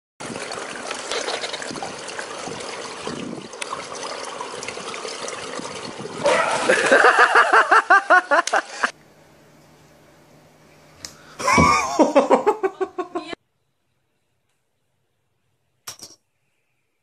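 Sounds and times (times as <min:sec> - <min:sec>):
pool water sloshing: 0:00.2 - 0:09.0
swimmer splashing: 0:00.2 - 0:09.0.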